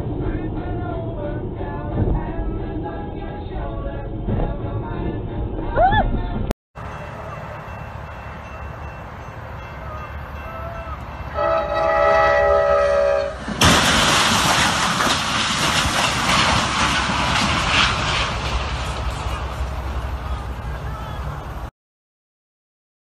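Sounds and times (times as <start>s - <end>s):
train horn chord: 6.8s - 13.5s
train crashing into truck: 13.0s - 20.8s
clattering wreckage: 13.4s - 20.4s.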